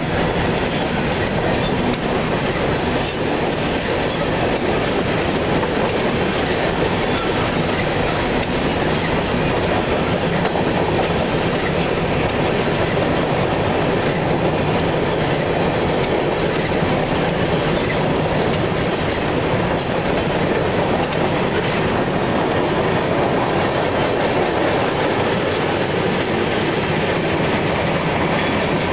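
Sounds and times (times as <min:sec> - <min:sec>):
steel wheels running on rails: 0:00.0 - 0:28.9.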